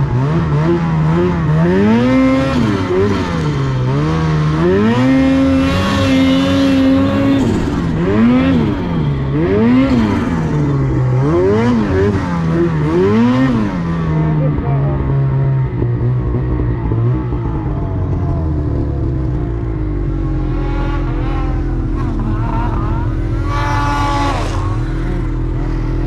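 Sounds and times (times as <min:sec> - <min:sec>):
snowmobile engine revving: 0:00.0 - 0:26.0.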